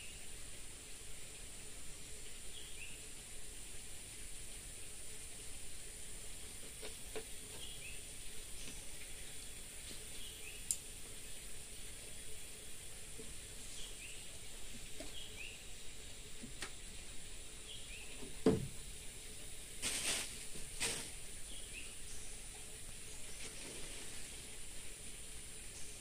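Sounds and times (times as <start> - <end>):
single thump: 18.4 - 18.8
short rustling noises: 19.8 - 21.2.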